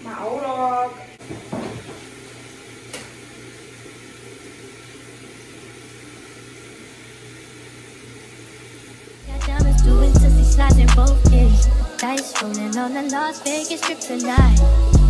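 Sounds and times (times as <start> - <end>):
faint hum: 2.5 - 11.9
hip-hop music with heavy bass: 9.3 - 15.0.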